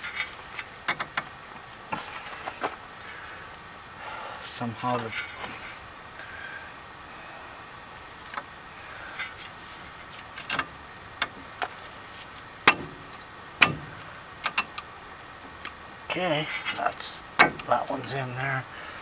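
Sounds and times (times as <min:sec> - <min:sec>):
metal clicks and knocks: 0:12.6 - 0:14.9, 0:17.4 - 0:17.7.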